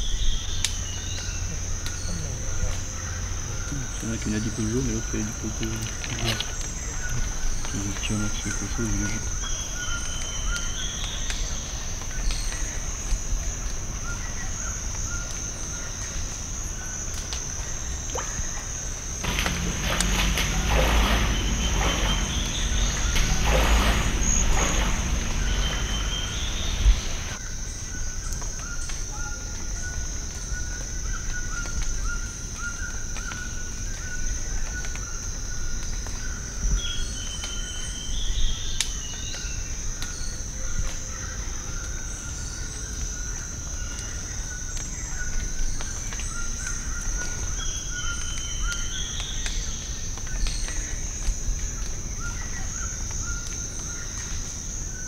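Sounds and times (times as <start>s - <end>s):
low insect trill: 0.0s - 55.0s
birds whistling: 19.2s - 27.4s
loud rushing noise: 19.2s - 27.4s.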